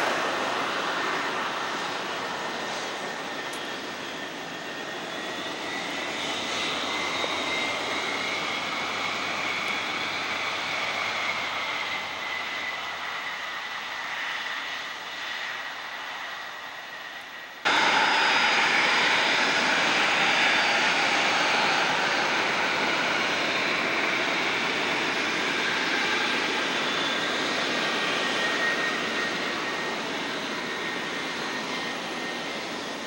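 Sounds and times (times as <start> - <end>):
jet engines whining: 0.0 - 33.0.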